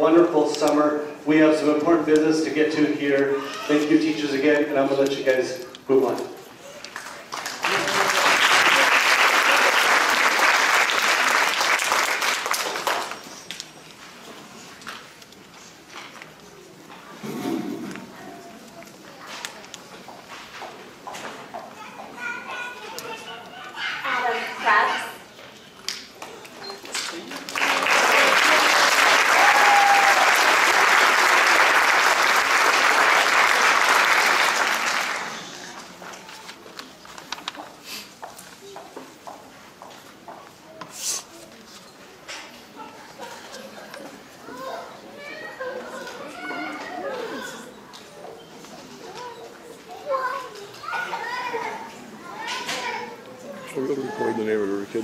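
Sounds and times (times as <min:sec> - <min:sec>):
audience applauding: 0:06.9 - 0:13.3, 0:27.2 - 0:35.8.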